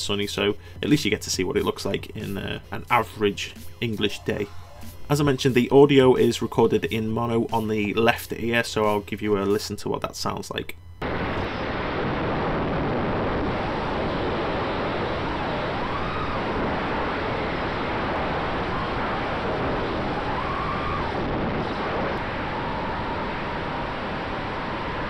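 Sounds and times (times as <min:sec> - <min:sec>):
faint motor whine: 0:04.1 - 0:25.0
propeller wash and wind rush: 0:12.6 - 0:25.0.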